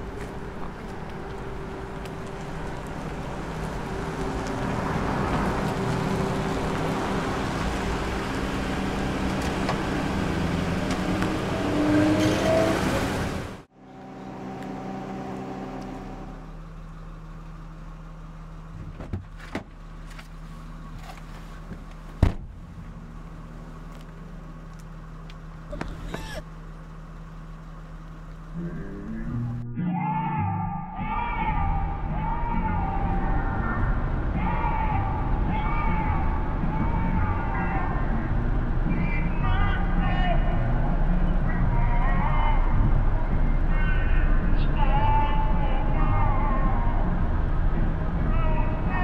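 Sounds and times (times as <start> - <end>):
car approaching: 0.0 - 49.0
low steady hum: 13.8 - 19.1.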